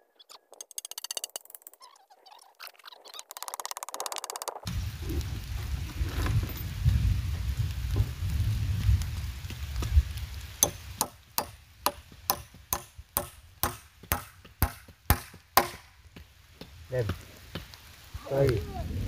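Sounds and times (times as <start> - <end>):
machete chopping wood: 10.6 - 15.9.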